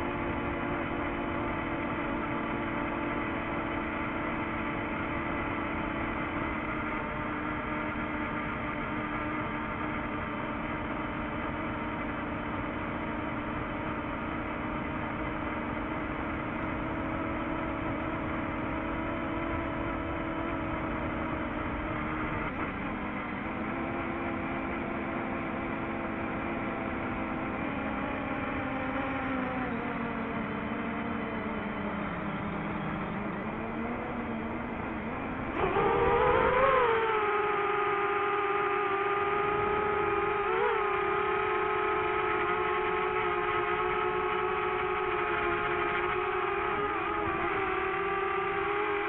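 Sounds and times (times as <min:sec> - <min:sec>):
drone propellers whining: 0:16.6 - 0:49.0.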